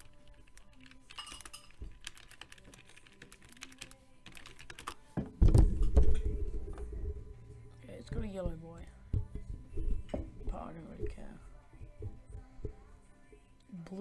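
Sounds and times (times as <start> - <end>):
keyboard keys clicking: 0.0 - 5.0.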